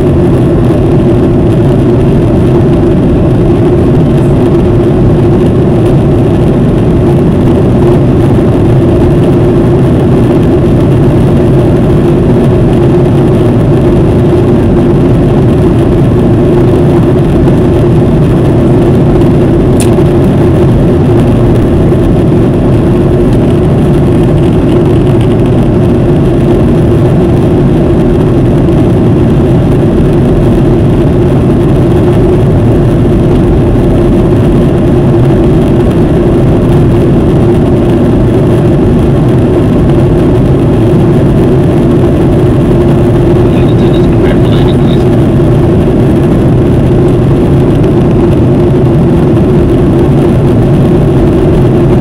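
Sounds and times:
jet engines roaring: 0.0 - 52.0
low hum: 0.0 - 52.0.

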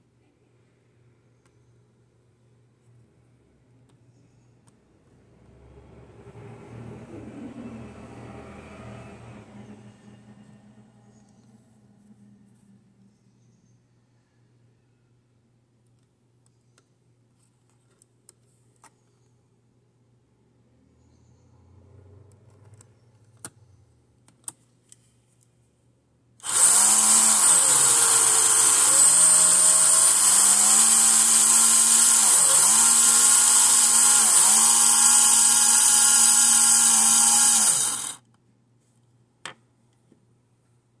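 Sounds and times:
slot car motor whining: 26.4 - 38.2.

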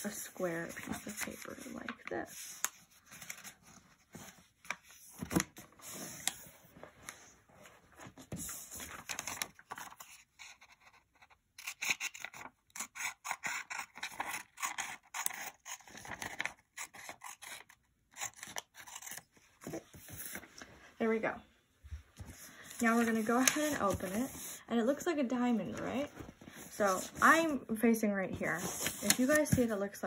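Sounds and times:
scissors snipping paper: 11.6 - 19.2
paper rubbed and scraped: 28.5 - 29.7.

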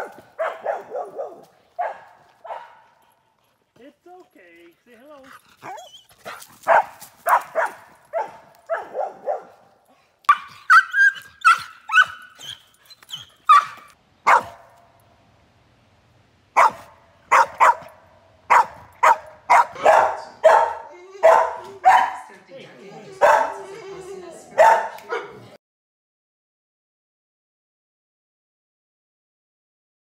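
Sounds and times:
dog barking and yelping: 0.0 - 3.0, 5.6 - 9.7, 10.3 - 14.8, 16.6 - 22.3, 23.2 - 23.8, 24.5 - 25.5.

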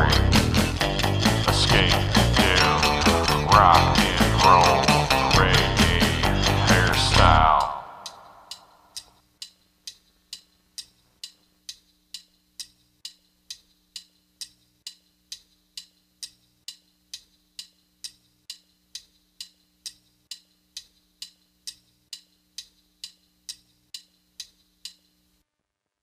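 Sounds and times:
steady ticking clicks: 0.0 - 25.4.

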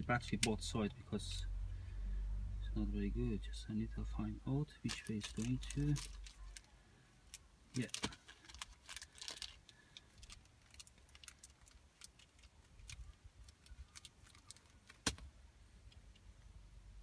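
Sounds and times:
package crinkling: 4.9 - 6.7, 7.8 - 15.2.

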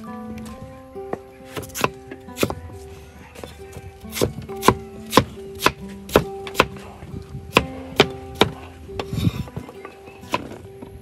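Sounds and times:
cleaver chopping on wooden block: 1.1 - 2.6, 3.4 - 6.9, 7.5 - 9.7.

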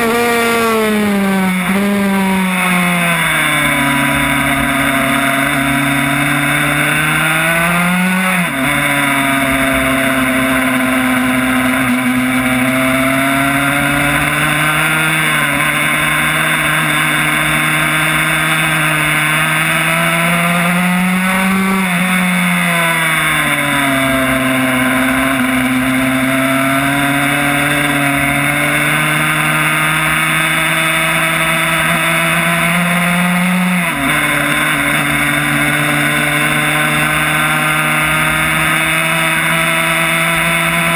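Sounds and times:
two-stroke motorcycle engine racing: 0.0 - 40.9.

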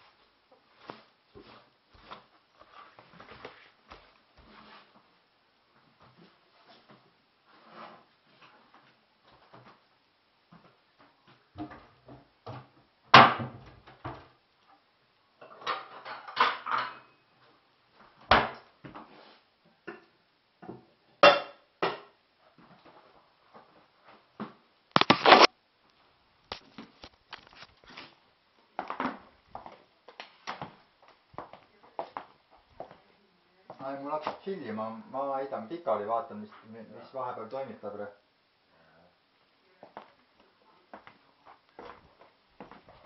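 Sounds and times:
dishes clinking and clattering: 15.4 - 17.2.

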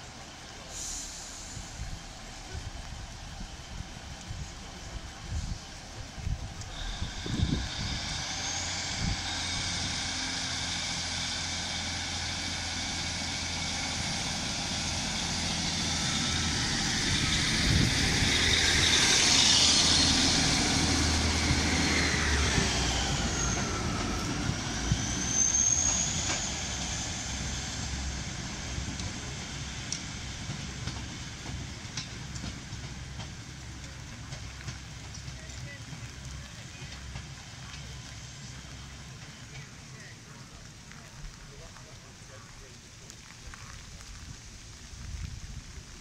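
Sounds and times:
train passing close by: 0.0 - 42.5
diesel train engine droning: 0.0 - 43.0.

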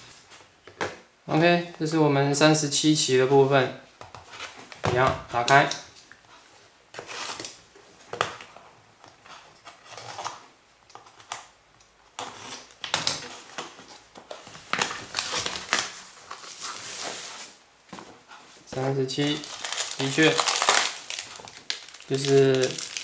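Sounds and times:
plastic wrapping crinkling: 12.2 - 17.6, 18.7 - 23.0.

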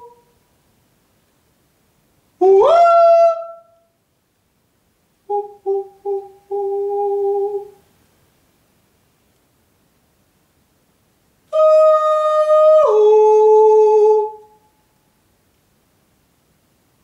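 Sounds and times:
man humming: 5.3 - 7.8, 11.6 - 14.5
man singing a gliding note: 5.3 - 7.8.

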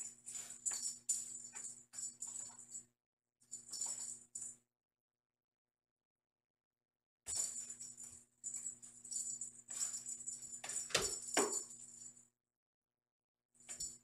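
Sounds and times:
toy ball jingling and rattling: 7.3 - 12.1.

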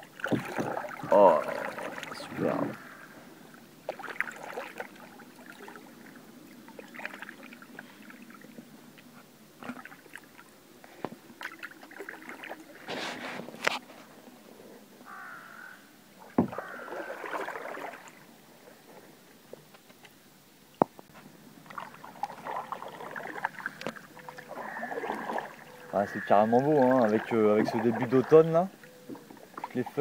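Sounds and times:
paddle splashing in water: 0.0 - 14.4, 16.2 - 19.6, 21.6 - 30.0.

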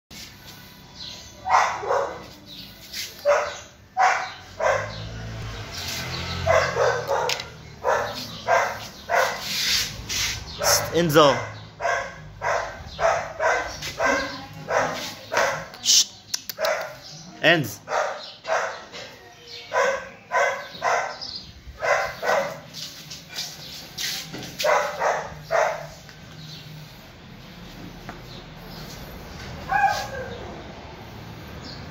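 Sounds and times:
dog barking: 1.4 - 2.4, 3.2 - 5.3, 6.3 - 9.7, 10.5 - 15.8, 16.6 - 17.0, 17.8 - 19.0, 19.7 - 22.7, 24.6 - 26.0, 29.7 - 30.5.

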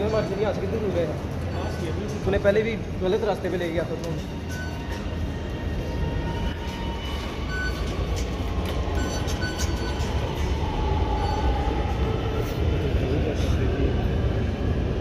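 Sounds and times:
metro train rumbling: 0.0 - 15.0
train wheel squeal: 4.2 - 12.6
fare gate beeps: 7.3 - 8.0, 8.9 - 10.3.

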